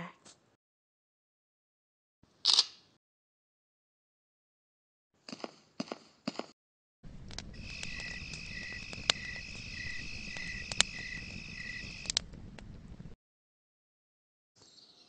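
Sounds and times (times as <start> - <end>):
low rumble: 7.1 - 13.2
cricket chirping: 7.2 - 12.2
sharp clicks: 7.2 - 12.8
high insect trill: 7.4 - 12.1.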